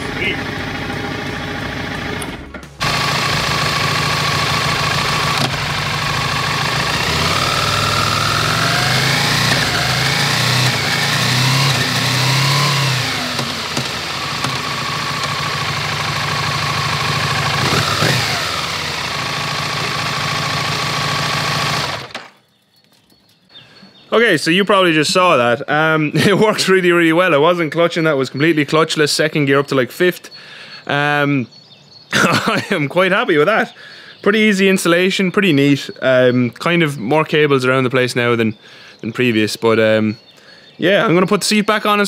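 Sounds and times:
motorcycle engine revving and idling: 0.0 - 22.4.

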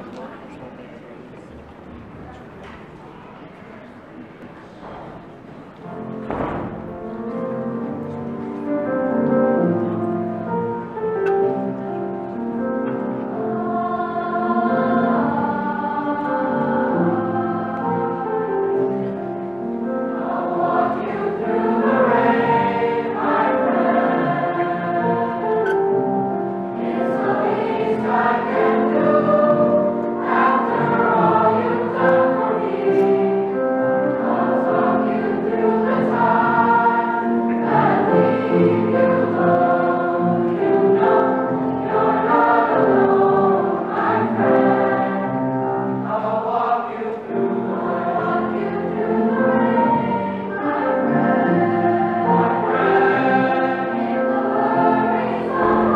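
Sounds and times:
piano accompaniment: 1.6 - 55.9
youth choir singing: 13.0 - 55.9.

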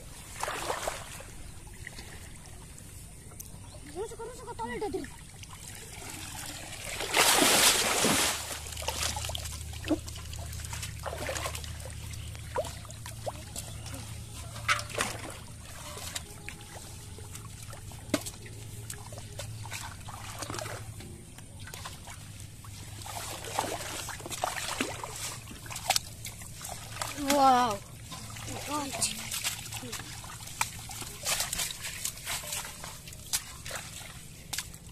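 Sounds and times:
water splashing: 0.0 - 3.0, 4.0 - 34.9
water dripping: 4.6 - 34.9
wet net rustling: 5.8 - 21.0, 21.8 - 34.9
loud splash: 6.0 - 9.4.

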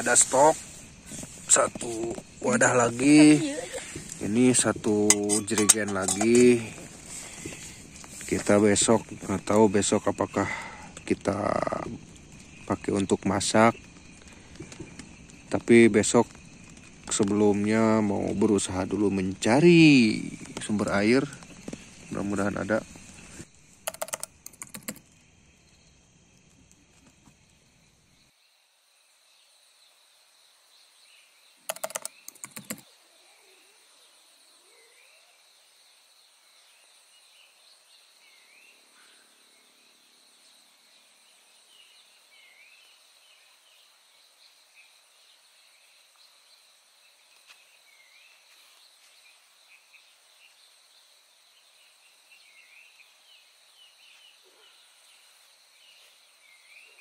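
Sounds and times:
bird chirps: 0.0 - 12.0
high insect drone: 0.0 - 57.0
rapid clicks: 23.8 - 25.1, 31.7 - 32.8.

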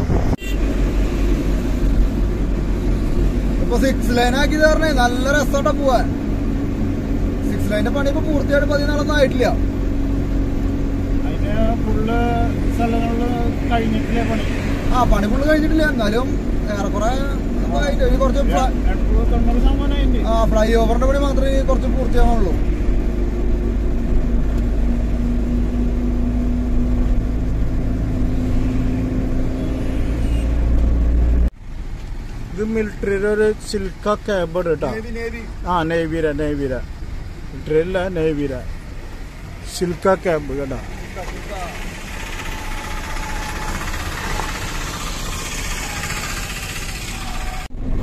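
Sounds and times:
road noise: 0.0 - 48.0
truck diesel engine: 0.0 - 48.0
truck diesel engine droning: 32.6 - 48.0.

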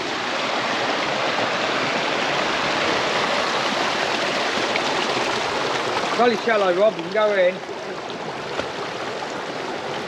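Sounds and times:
runoff water rushing: 0.0 - 10.0.

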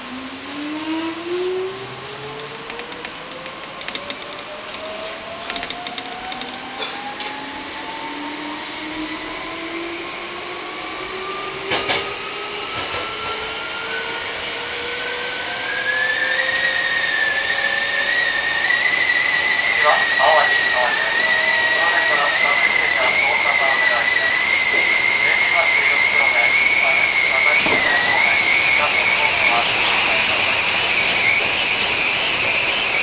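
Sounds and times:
train traction motors whining: 0.0 - 33.0
wheels clicking on track: 2.4 - 6.6
train running rumble: 19.1 - 33.0.

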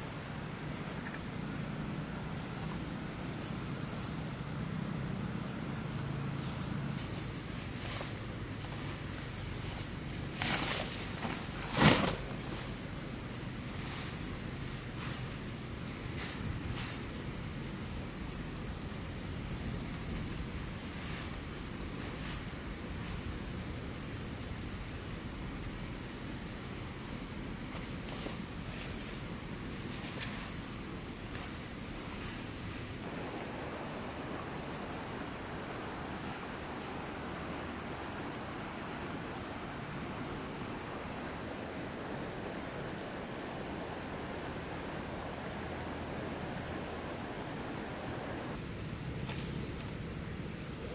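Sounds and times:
insects droning: 0.0 - 50.9
camp gear clicks and rustle: 7.0 - 12.9.

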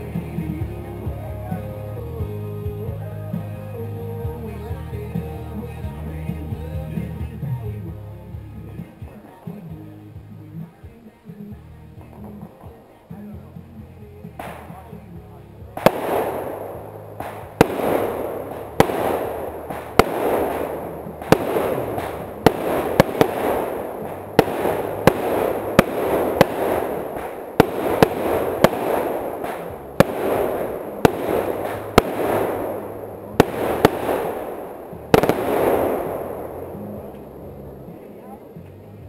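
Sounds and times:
fireworks bangs: 0.0 - 7.9, 14.2 - 38.9
fireworks hissing rush: 15.7 - 38.3.

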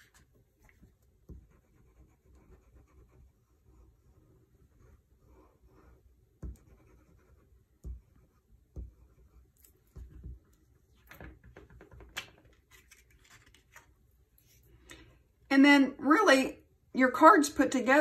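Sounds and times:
paper rustling and scraping: 12.4 - 14.6.

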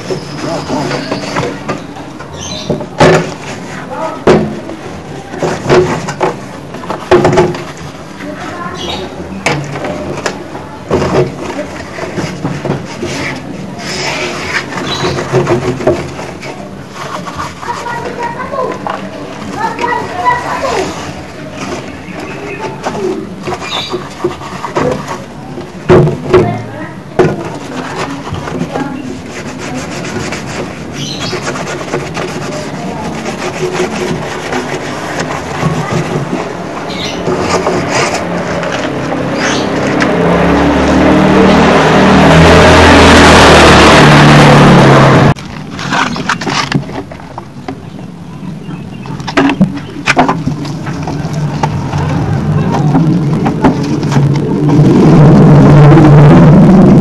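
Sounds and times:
sponge scrubbing sheet metal: 0.0 - 45.3
plastic casing knocks and clatters: 5.4 - 7.9
low motor hum: 34.8 - 45.4, 50.3 - 57.0.

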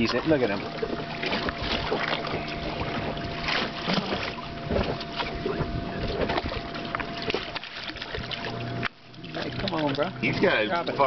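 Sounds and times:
thin steady hum: 0.0 - 11.0
water splashing against boat: 0.0 - 11.0
wind on microphone: 0.8 - 7.5.

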